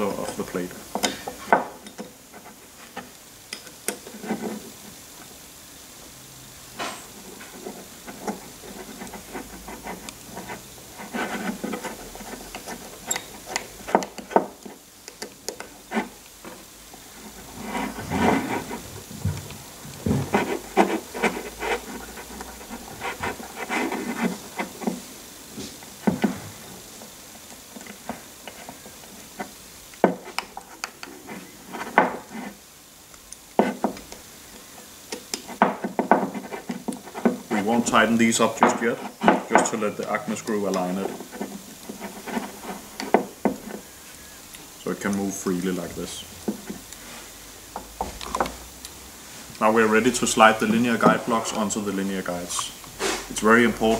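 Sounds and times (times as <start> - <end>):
screwdriver clicking and scraping: 8.1 - 16.6.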